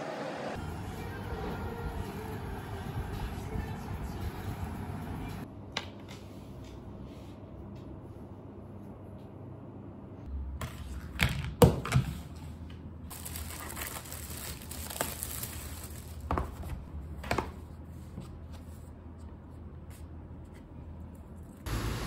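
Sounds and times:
paper rustling and crinkling: 13.1 - 16.8.

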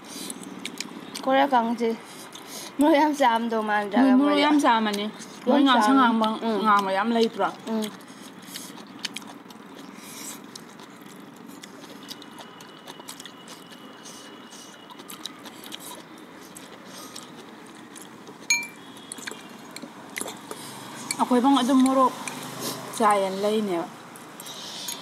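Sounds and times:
slurping and chewing noodles: 7.7 - 21.2
fork clinking against bowl: 18.5 - 18.8.

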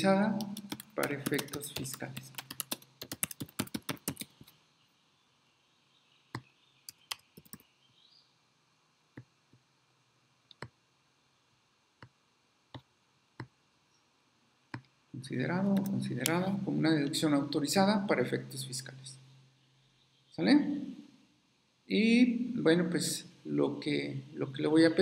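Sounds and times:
computer keyboard typing: 0.4 - 4.5, 6.9 - 7.6.

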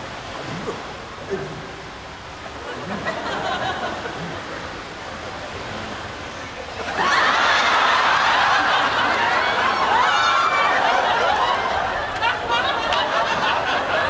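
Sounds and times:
pool water sloshing: 0.0 - 14.0
audience laughter: 2.6 - 4.6, 6.8 - 14.0.

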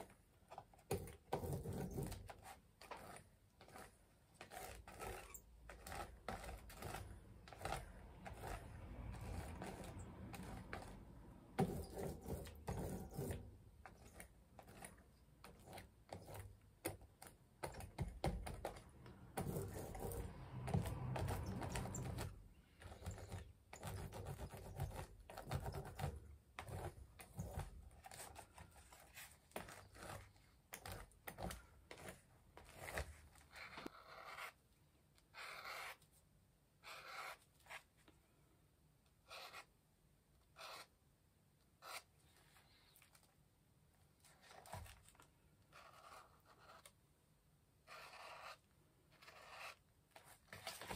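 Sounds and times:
scratchy strokes: 1.1 - 16.6, 18.4 - 36.2, 36.8 - 38.1, 39.2 - 39.8, 40.4 - 41.0, 41.8 - 43.3, 44.2 - 47.0, 47.8 - 50.9
sponge dabbing on paper: 1.2 - 34.6.

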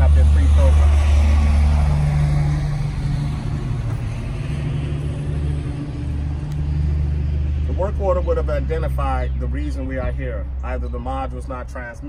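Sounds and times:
low mechanical rumble: 0.0 - 12.0.

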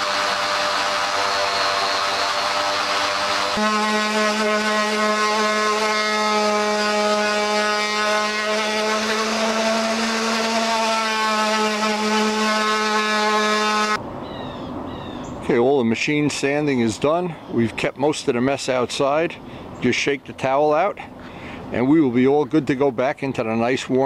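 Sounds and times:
electric orbital sander whining: 0.0 - 14.0.

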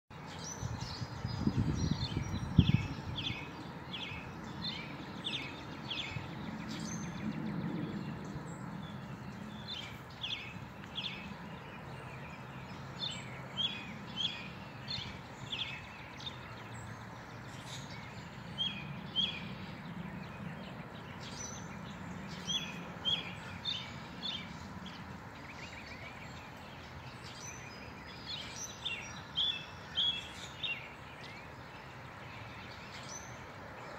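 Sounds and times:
small birds chirping: 0.1 - 33.9.

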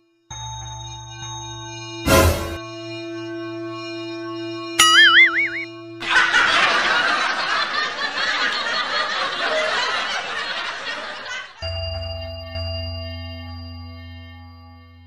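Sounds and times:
crowd laughing: 6.0 - 11.6.

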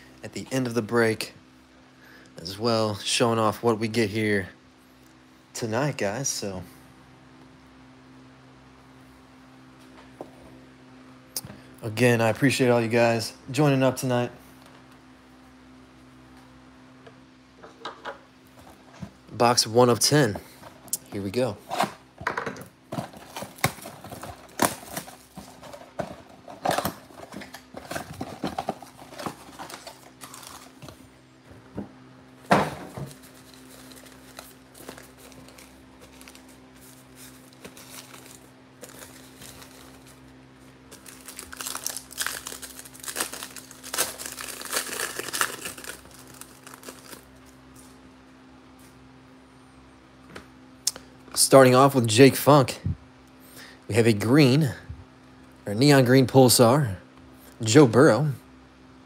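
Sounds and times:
foil packs crinkling: 22.9 - 31.1, 32.8 - 47.9.

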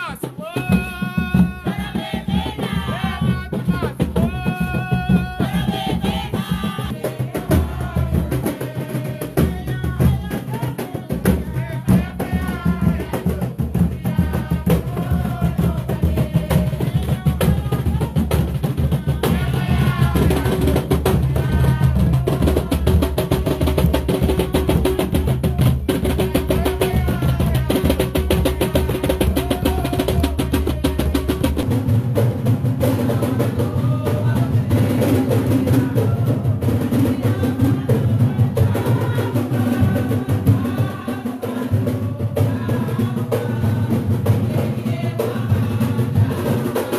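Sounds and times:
hand drums playing fast: 0.0 - 46.9
voices singing: 0.0 - 46.9.

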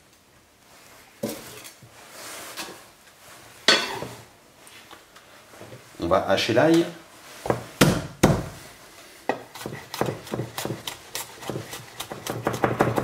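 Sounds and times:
knife chopping on wooden board: 7.5 - 8.5, 9.3 - 13.0.

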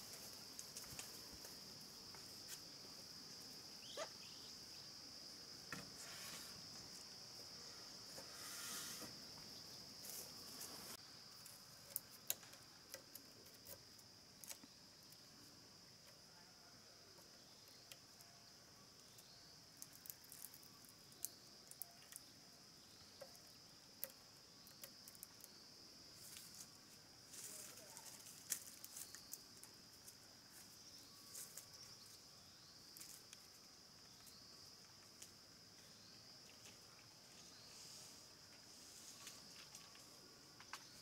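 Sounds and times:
insects trilling: 0.0 - 41.0
brief scraping sounds: 5.9 - 6.6, 8.2 - 9.2.

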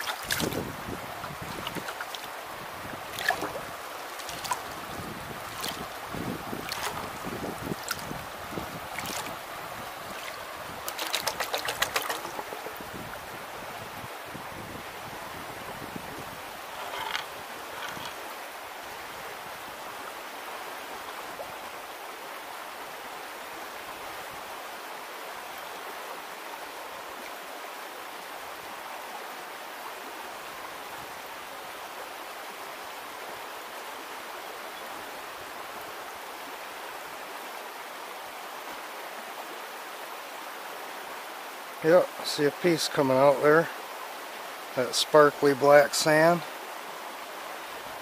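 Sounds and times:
creek water flowing: 0.0 - 48.0.

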